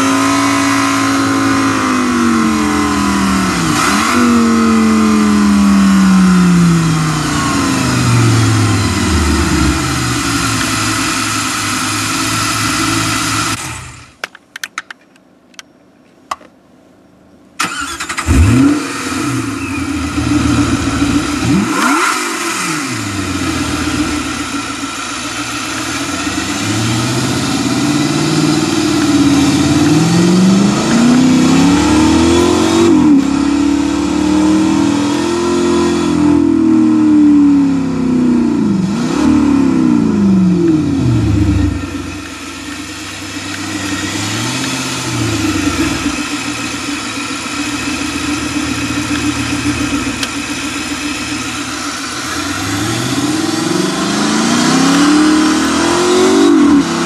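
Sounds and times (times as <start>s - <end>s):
simulated car engine revving: 0.0s - 14.1s, 17.7s - 57.0s
engine starting: 17.6s - 19.9s.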